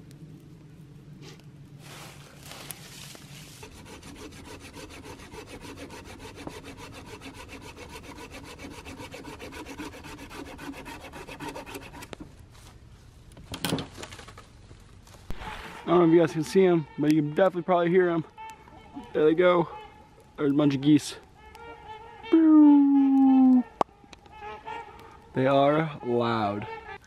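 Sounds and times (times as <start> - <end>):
hand saw cutting branch: 3.4 - 12.2.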